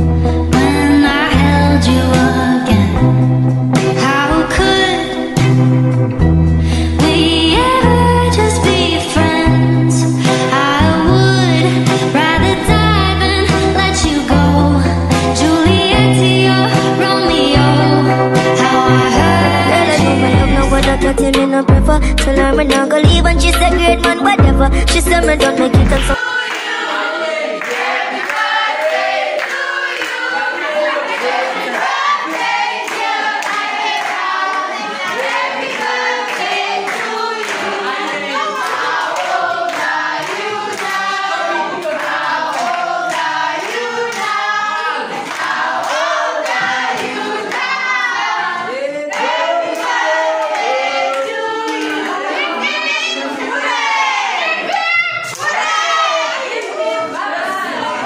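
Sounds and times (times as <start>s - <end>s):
girls singing in chorus: 0.5s - 3.0s, 7.0s - 20.6s, 25.3s - 58.0s
hand claps: 27.6s - 41.2s.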